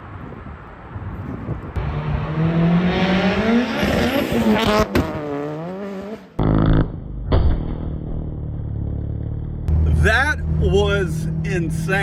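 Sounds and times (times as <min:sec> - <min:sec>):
car engine accelerating: 0:01.8 - 0:07.1, 0:08.0 - 0:12.0.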